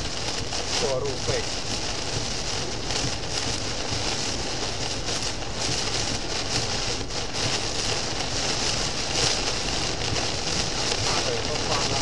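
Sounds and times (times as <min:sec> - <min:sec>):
car road rumble: 0:00.0 - 0:12.0
heavy rain on car windshield: 0:00.0 - 0:12.0.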